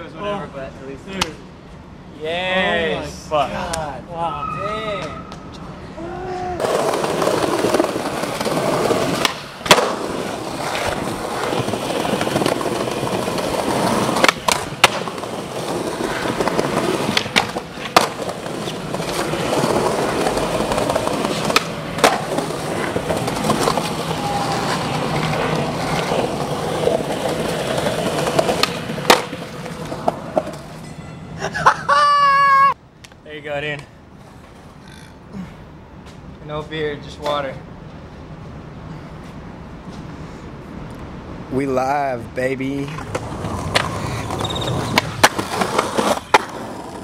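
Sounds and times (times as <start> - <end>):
skateboard wheels rolling on concrete: 4.9 - 47.0
skateboard clacking over joints: 6.6 - 30.8, 42.9 - 47.0.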